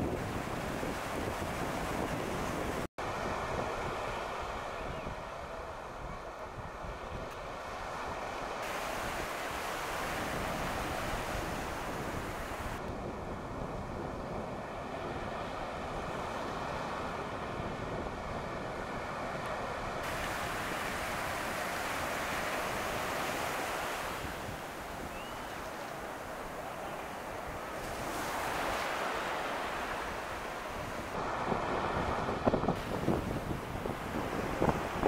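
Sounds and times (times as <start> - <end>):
wind on microphone: 0.0 - 35.0
sea surf breaking: 7.6 - 12.9, 14.7 - 35.0.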